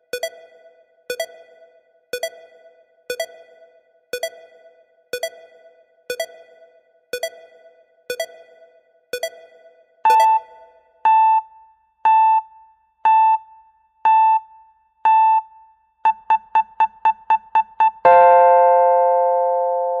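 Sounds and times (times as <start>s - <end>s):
electronic timer beeps: 0.1s - 11.5s.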